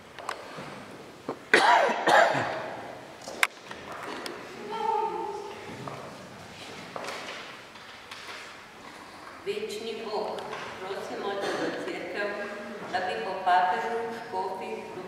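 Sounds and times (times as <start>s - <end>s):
person coughing in a church: 1.5s - 2.8s, 11.3s - 12.0s.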